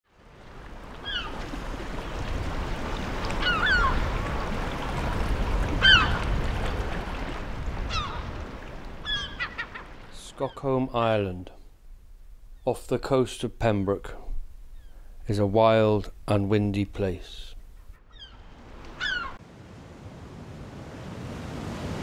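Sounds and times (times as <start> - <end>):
wind and sea rushing: 0.1 - 12.6, 17.6 - 22.0
seabirds calling: 0.8 - 2.2, 3.0 - 5.0, 5.6 - 11.4, 14.4 - 15.4, 17.3 - 19.4.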